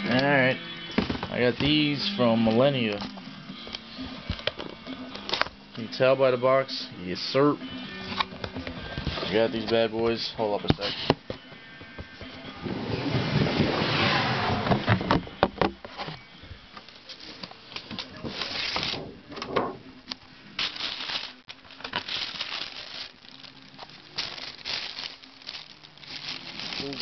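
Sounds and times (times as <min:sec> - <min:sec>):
tissue paper rustling: 0:20.6 - 0:27.0.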